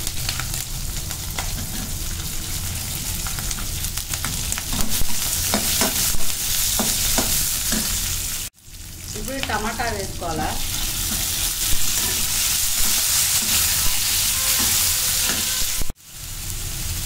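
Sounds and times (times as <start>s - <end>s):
onions sizzling in hot oil: 0.0s - 17.0s
metal skimmer scraping a pan: 10.8s - 15.9s.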